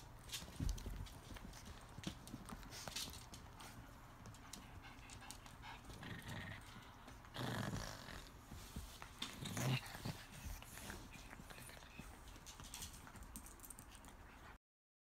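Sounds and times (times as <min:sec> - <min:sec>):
dogs panting: 0:00.4 - 0:14.6
dogs growling: 0:04.7 - 0:08.6, 0:09.2 - 0:12.0.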